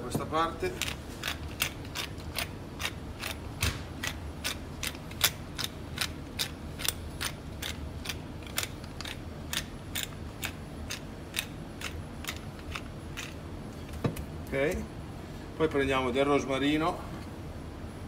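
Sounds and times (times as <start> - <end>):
pepper mill grinding: 0.7 - 13.4.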